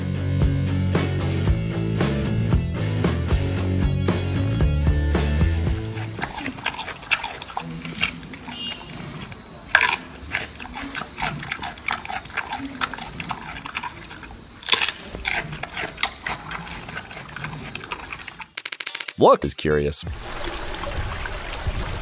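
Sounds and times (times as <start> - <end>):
panda chewing bamboo: 5.7 - 18.6.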